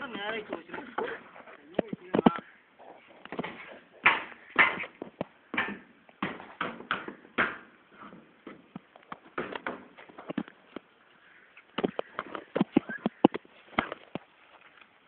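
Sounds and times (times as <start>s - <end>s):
hammer knocking on timber boards: 5.5s - 7.7s.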